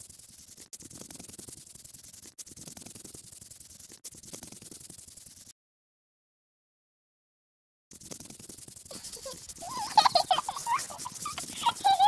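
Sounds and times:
scratchy colouring rubbing: 0:00.0 - 0:05.5, 0:07.9 - 0:12.0.

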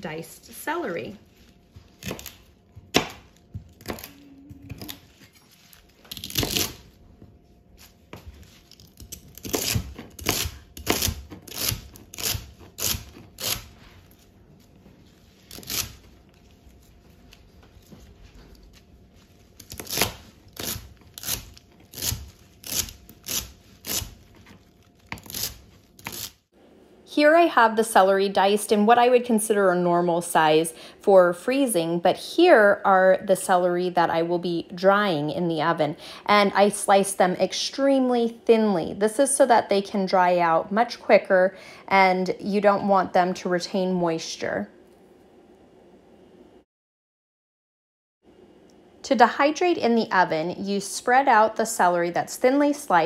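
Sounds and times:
knife chopping celery: 0:08.7 - 0:13.8.

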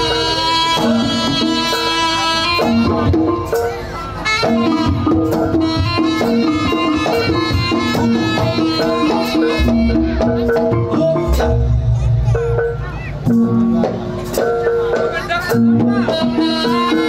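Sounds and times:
held pitched melody notes: 0:00.0 - 0:17.0
quick percussion strikes: 0:00.0 - 0:17.0
deep low drum hits: 0:07.2 - 0:16.2.

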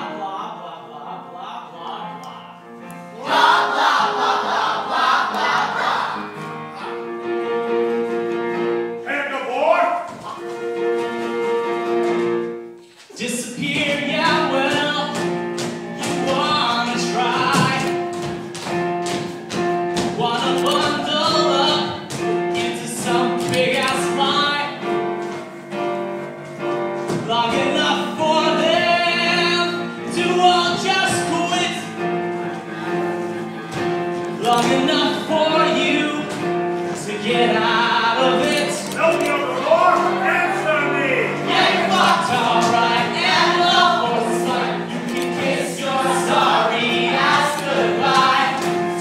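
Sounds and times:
show tune singing with backing: 0:03.0 - 0:07.0, 0:13.1 - 0:18.4, 0:19.6 - 0:25.1, 0:27.1 - 0:49.0.

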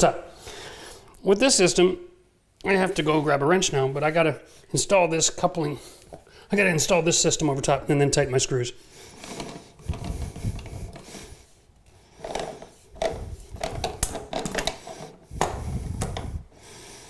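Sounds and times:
rubbing and knocking: 0:09.2 - 0:11.3, 0:12.1 - 0:16.4.

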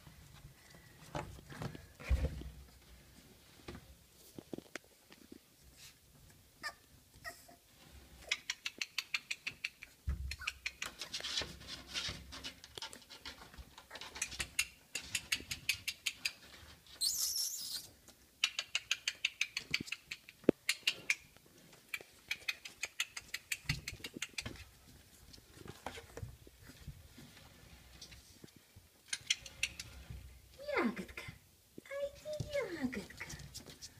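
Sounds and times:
puppy claws clicking and scratching: 0:08.3 - 0:16.8, 0:18.0 - 0:26.8
scratchy rustle: 0:10.9 - 0:14.2.

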